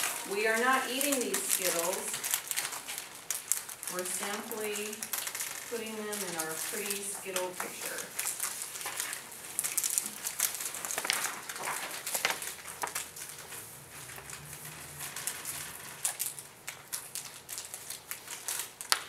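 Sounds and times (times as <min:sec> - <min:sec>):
candies clicking on desks: 0:00.0 - 0:19.0
candy packets crinkling: 0:00.0 - 0:19.0.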